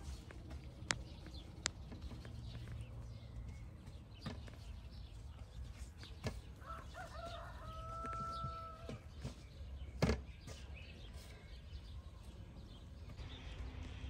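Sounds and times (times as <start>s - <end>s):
rooster crowing: 6.6s - 9.0s.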